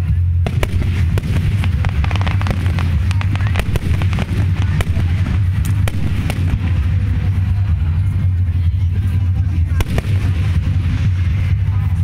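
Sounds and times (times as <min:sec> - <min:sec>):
low rumble: 0:00.0 - 0:12.0
fireworks bursting: 0:00.4 - 0:07.8, 0:09.7 - 0:12.0.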